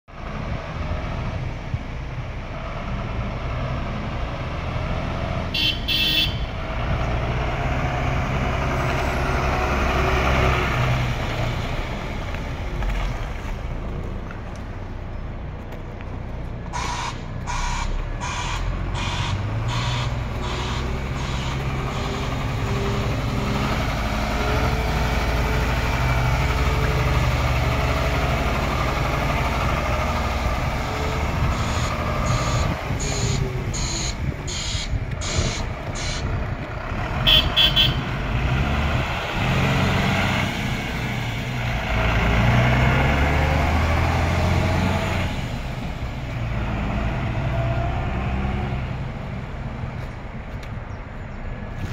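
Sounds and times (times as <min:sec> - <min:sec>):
truck diesel engine running: 0:13.8 - 0:50.5
beeps: 0:31.6 - 0:35.6.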